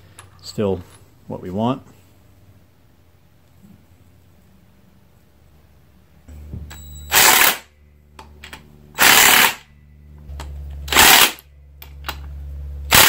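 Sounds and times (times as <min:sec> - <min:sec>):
impact wrench hammering bolts: 0:06.7 - 0:09.7, 0:10.3 - 0:12.3.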